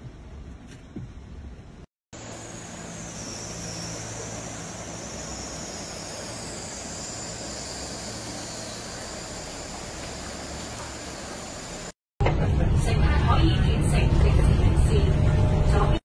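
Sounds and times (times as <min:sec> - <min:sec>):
low hum: 0:01.1 - 0:16.0
floodwater rushing along street: 0:03.7 - 0:11.9.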